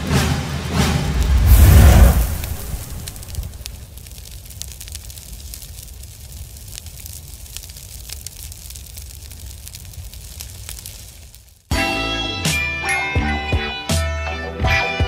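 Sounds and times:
music: 0:00.0 - 0:01.2, 0:11.7 - 0:15.0
fire crackling: 0:00.0 - 0:11.7
low rumble of fire: 0:00.0 - 0:11.7.

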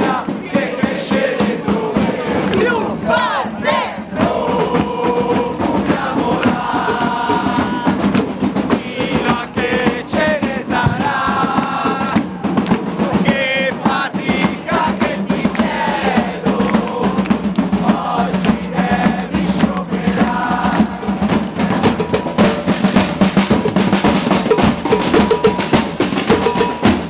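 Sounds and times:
crowd singing together: 0:00.0 - 0:27.0
music: 0:00.0 - 0:27.0.

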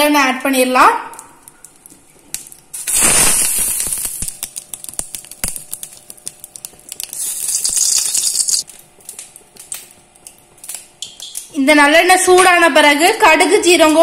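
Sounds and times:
oil sizzling in a hot pan: 0:02.8 - 0:06.2, 0:06.9 - 0:08.7.

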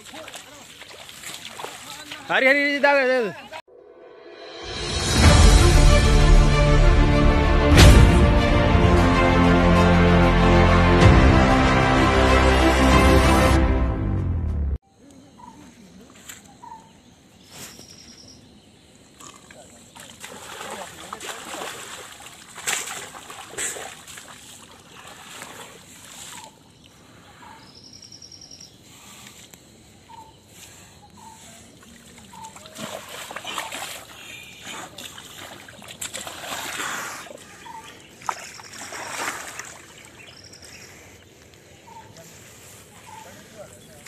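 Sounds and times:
mud splashing and squelching: 0:00.0 - 0:02.6, 0:19.2 - 0:26.7, 0:31.1 - 0:41.6.

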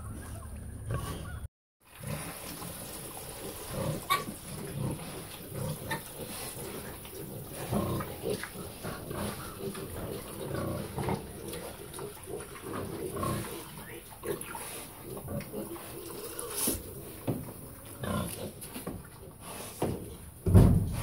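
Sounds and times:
hogs grunting: 0:03.5 - 0:19.7.

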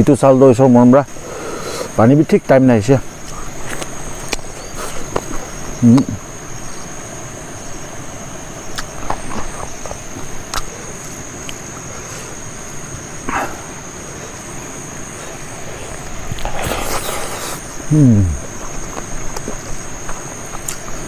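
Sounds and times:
high insect buzz: 0:00.0 - 0:21.0
low mouth sound: 0:16.3 - 0:19.7
chewing: 0:18.3 - 0:20.9.

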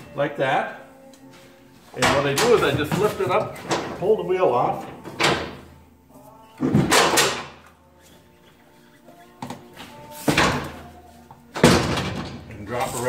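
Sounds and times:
metal clunking and scraping: 0:01.8 - 0:05.8, 0:09.4 - 0:13.0.

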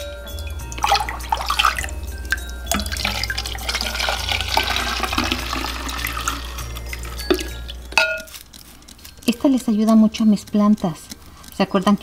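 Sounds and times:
glass clinks: 0:00.0 - 0:04.4, 0:05.3 - 0:08.4
water sloshing and splashing: 0:00.4 - 0:08.0.

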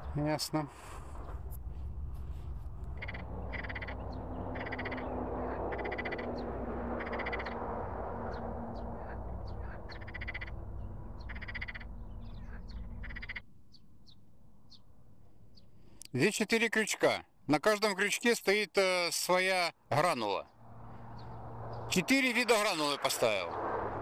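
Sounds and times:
low rushing noise: 0:00.0 - 0:13.4, 0:20.6 - 0:24.0
frogs croaking: 0:02.9 - 0:14.8.

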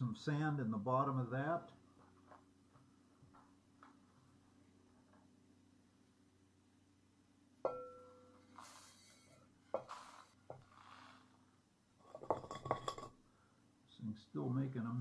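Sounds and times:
clay saucer clinking against pot: 0:07.7 - 0:08.2, 0:12.1 - 0:13.1
sand pouring hiss: 0:08.5 - 0:11.3
rattle of sand grains: 0:09.8 - 0:11.3.

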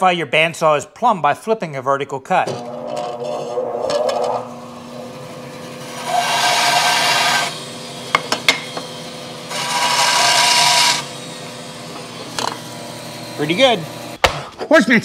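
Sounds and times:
bandsaw cutting board: 0:02.4 - 0:14.6
bandsaw motor hum: 0:02.5 - 0:14.2.

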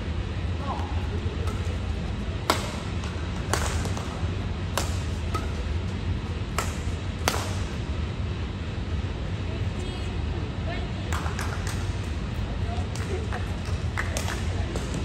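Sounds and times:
steady low hum: 0:00.0 - 0:15.0
rackets hitting shuttlecock: 0:00.6 - 0:07.8.

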